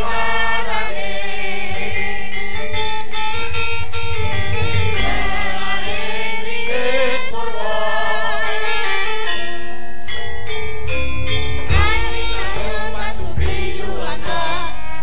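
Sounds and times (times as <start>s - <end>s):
gamelan metallophones ringing: 0.0s - 14.3s
woman singing: 11.7s - 15.0s.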